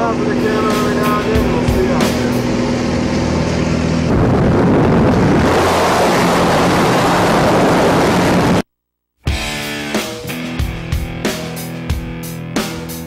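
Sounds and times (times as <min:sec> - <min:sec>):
plane engine droning: 0:00.0 - 0:08.7
loud wind rushing: 0:00.3 - 0:08.6.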